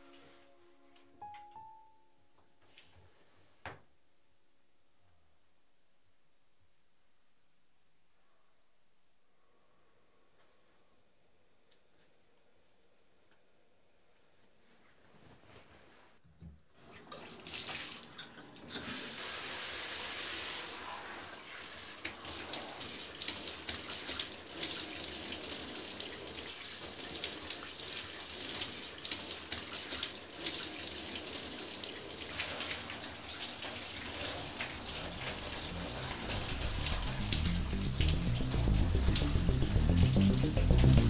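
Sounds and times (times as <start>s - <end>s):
shower water spraying on tiles: 17.5s - 41.0s.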